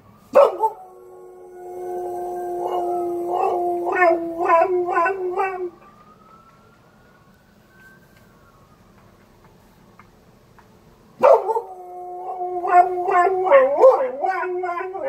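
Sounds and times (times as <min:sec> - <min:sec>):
distant siren wailing: 0:00.0 - 0:15.0
dog howling: 0:00.4 - 0:05.8, 0:11.2 - 0:15.0.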